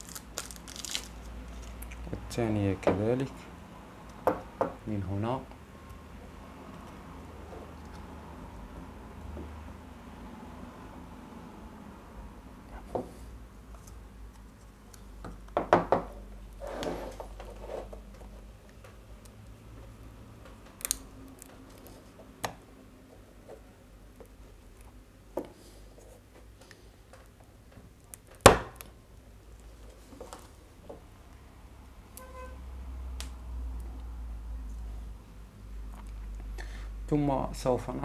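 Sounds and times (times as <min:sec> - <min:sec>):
rustling: 0:00.0 - 0:02.0.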